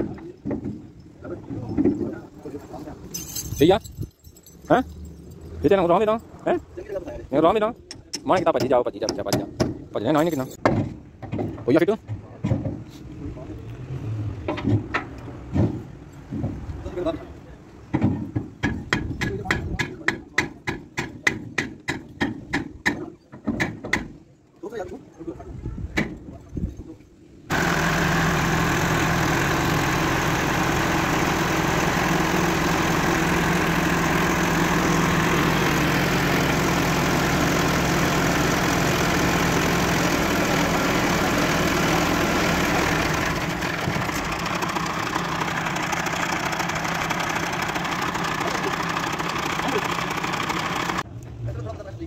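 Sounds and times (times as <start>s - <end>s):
tractor diesel engine running: 27.5s - 51.1s.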